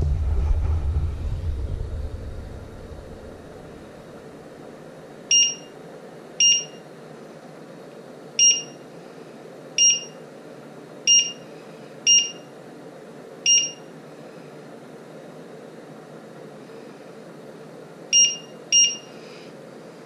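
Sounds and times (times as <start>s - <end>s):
short high beeps of touch keys: 5.3s - 5.7s, 6.4s - 6.8s, 8.4s - 8.8s, 9.8s - 10.2s, 11.1s - 11.4s, 12.1s - 12.5s, 13.5s - 13.8s, 18.2s - 19.1s.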